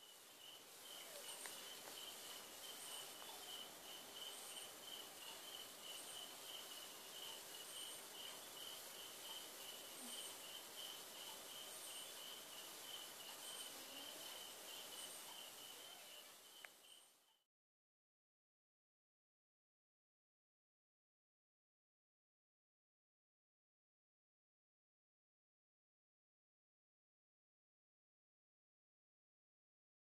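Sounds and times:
crickets trilling: 0.0 - 17.2.

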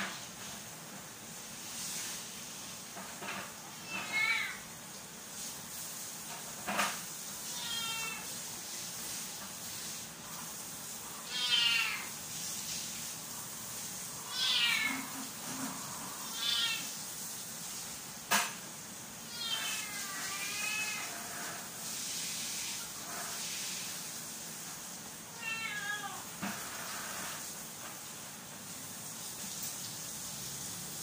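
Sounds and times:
kitten meowing: 7.5 - 8.2, 14.3 - 15.1, 16.2 - 16.9, 19.3 - 21.1, 25.4 - 26.2.

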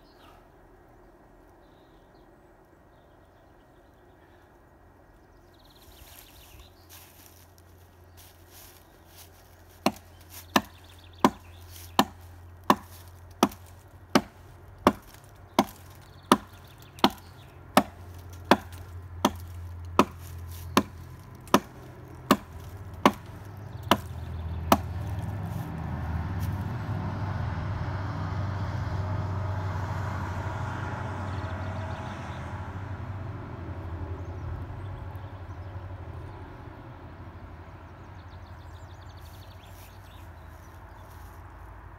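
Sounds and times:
steady rumbling noise: 6.0 - 27.4
hatchet chopping wood: 9.8 - 25.3.

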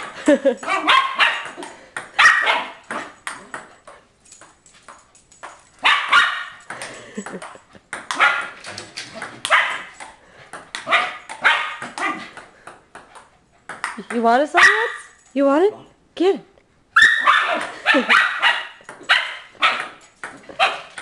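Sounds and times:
dog barking: 0.7 - 1.6, 2.2 - 2.8, 5.8 - 6.6, 8.2 - 8.6, 9.5 - 9.9, 10.8 - 12.3, 14.6 - 15.0, 17.0 - 20.0, 20.6 - 20.9
ping-pong ball clicks: 2.8 - 5.6, 6.6 - 14.4, 18.8 - 19.1.

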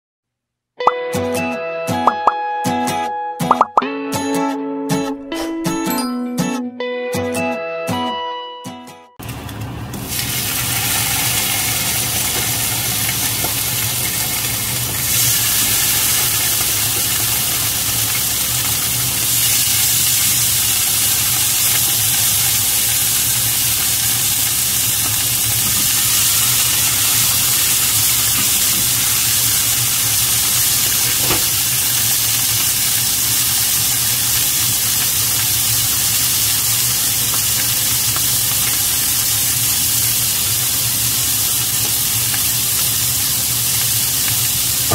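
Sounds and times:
meat sizzling in a frying pan: 9.2 - 44.9.

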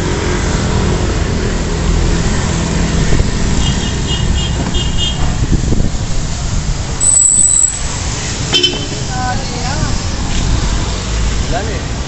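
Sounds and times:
steady hiss of wet street: 0.0 - 12.0
short high-pitched pips: 7.0 - 8.0.

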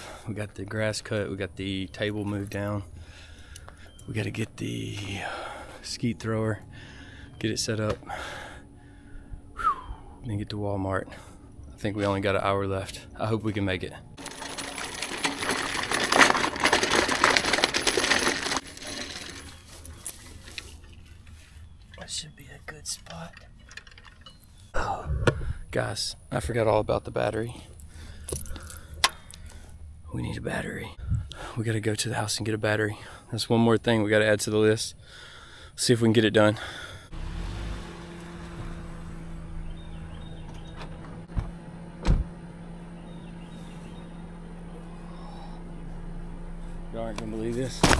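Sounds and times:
steady low hum: 0.0 - 37.2, 37.8 - 47.9
wheeled thrower rattling over ground: 14.2 - 21.0.

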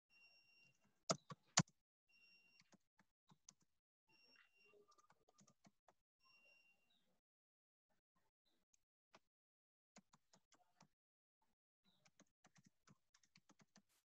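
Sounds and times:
typing on computer keyboard: 4.9 - 5.9, 12.0 - 13.8.

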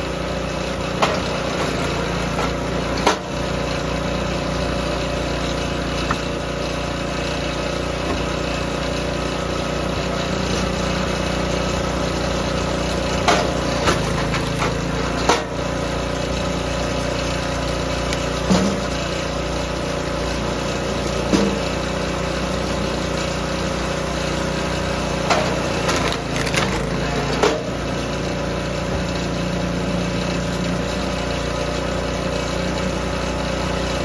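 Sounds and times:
small gas engine running: 0.0 - 34.0
wood splitting cracks: 13.1 - 15.5, 25.3 - 27.6.

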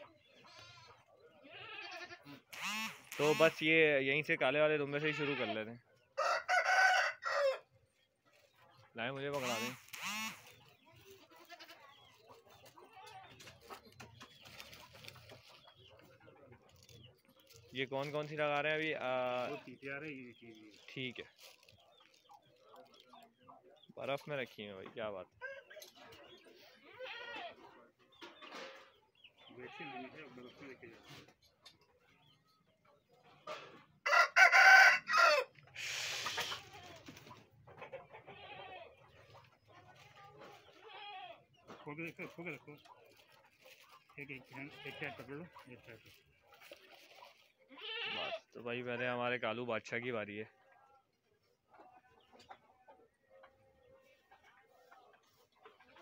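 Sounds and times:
rooster crowing: 6.2 - 7.6, 34.0 - 35.5
plastic bag rustling: 20.8 - 22.2.

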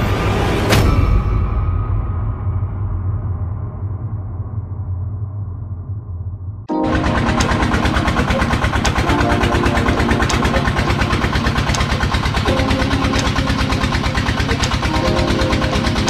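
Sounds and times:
boat engine running: 6.7 - 16.0.

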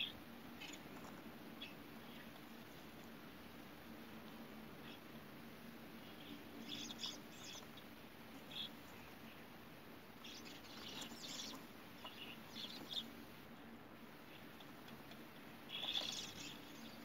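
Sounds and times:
starling scratchy chirps: 6.2 - 7.8, 10.2 - 13.2, 15.6 - 17.0.

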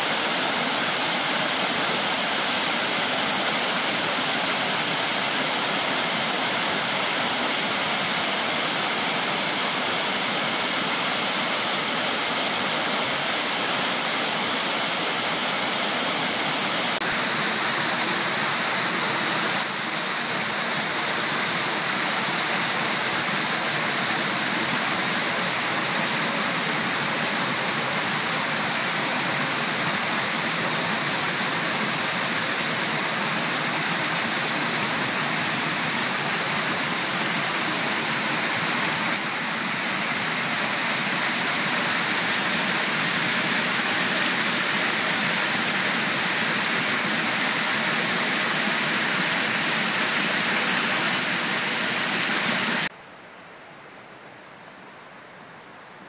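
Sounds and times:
water pouring and splashing: 16.3 - 52.9.

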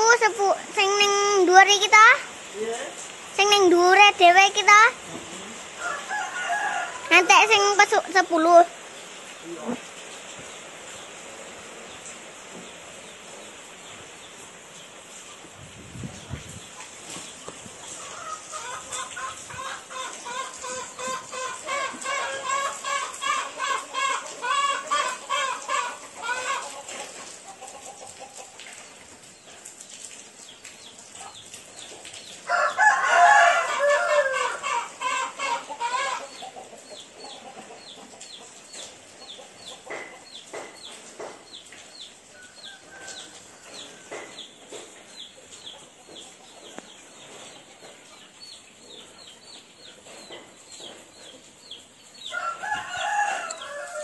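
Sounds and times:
steady hiss: 0.0 - 32.5
chickens clucking and cackling: 4.6 - 9.2, 16.2 - 29.9, 30.7 - 54.0.

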